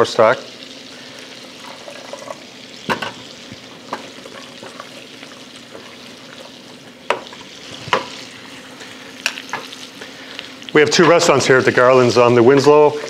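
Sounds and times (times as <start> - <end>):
scallops sizzling in butter: 0.0 - 13.0
wooden spoon stirring in pot: 3.6 - 9.7.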